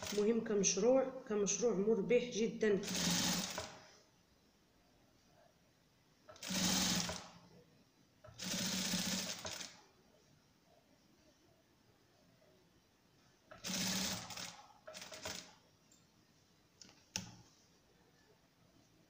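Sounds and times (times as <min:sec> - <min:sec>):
electric sewing machine stitching: 0:02.8 - 0:03.8, 0:06.3 - 0:07.3, 0:08.3 - 0:09.8, 0:13.5 - 0:15.5.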